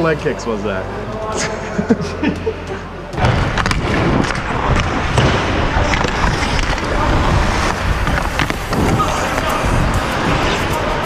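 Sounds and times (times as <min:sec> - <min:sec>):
hockey skates carving on ice: 0:03.5 - 0:11.0
wind rushing over microphone: 0:04.5 - 0:11.0.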